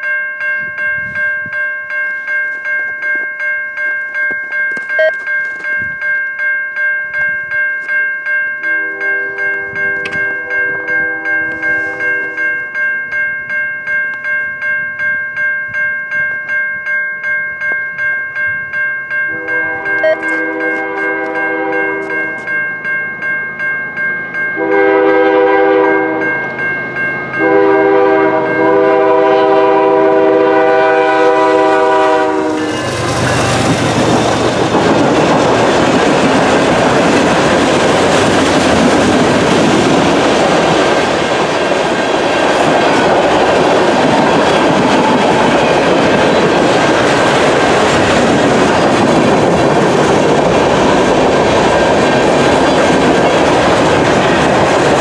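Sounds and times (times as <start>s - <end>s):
level-crossing bell ringing: 0.0s - 42.0s
locomotive horn blasts: 8.7s - 12.6s, 19.3s - 22.4s, 24.6s - 26.3s, 27.4s - 33.0s
freight train cars clickety-clack: 9.4s - 12.6s, 19.3s - 22.6s, 24.6s - 55.0s.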